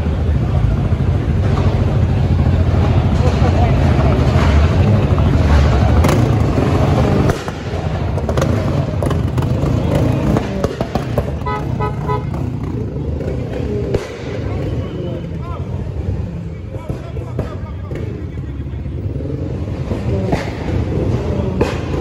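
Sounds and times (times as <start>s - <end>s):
vehicle engines running: 0.0s - 22.0s
horn short toots: 11.4s - 12.5s.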